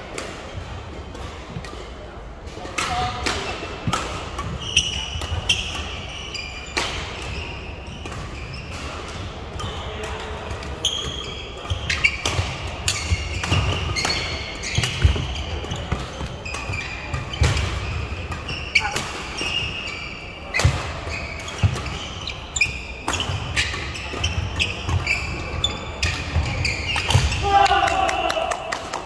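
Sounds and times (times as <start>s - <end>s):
shoe squeaks on court: 4.5s - 8.8s, 10.8s - 17.9s, 18.5s - 27.2s
racket hitting shuttlecock: 6.7s - 19.2s.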